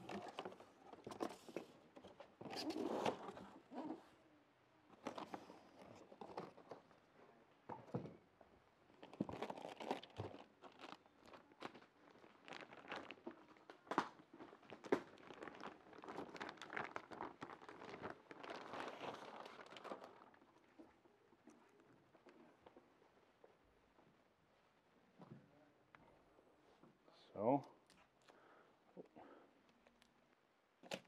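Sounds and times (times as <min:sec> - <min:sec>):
cardboard and plastic rustling: 0:00.0 - 0:04.0, 0:04.9 - 0:07.0, 0:08.9 - 0:23.5.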